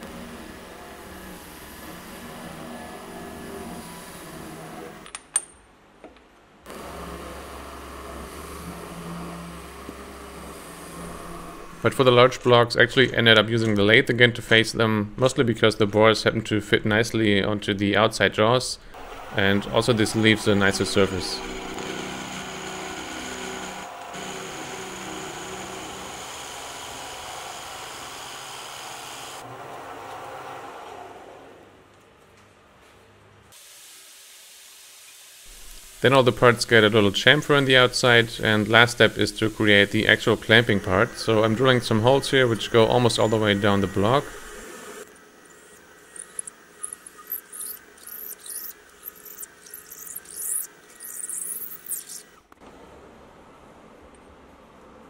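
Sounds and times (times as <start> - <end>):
metal lathe cutting: 19.0 - 31.1, 37.6 - 52.4
milling machine running: 19.0 - 31.6, 39.0 - 52.4.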